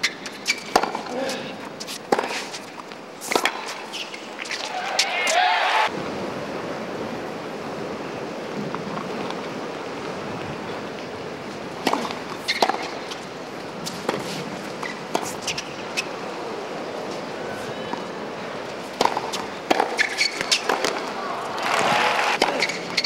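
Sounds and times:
tennis ball hits and bounces: 0.2s - 5.4s, 11.8s - 13.2s, 13.9s - 16.1s, 19.0s - 23.0s
stadium crowd: 4.6s - 6.0s, 20.4s - 23.0s.

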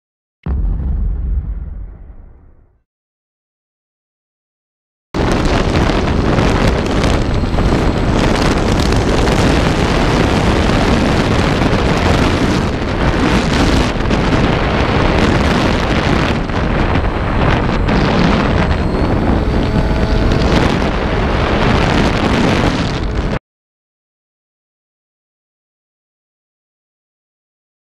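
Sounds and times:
wind noise on microphone: 5.2s - 23.4s.

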